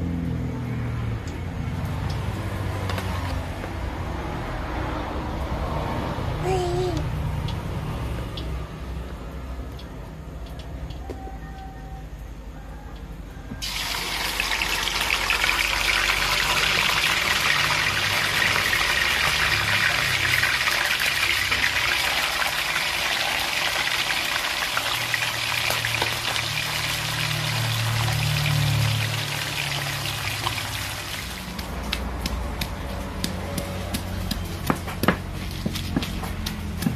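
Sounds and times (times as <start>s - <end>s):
fish sizzling in hot oil: 13.6s - 31.6s.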